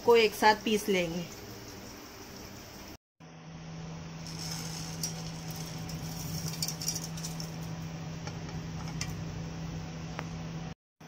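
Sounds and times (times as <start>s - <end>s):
low hum: 3.2s - 10.8s
spices rattling into grinder jar: 4.3s - 7.6s.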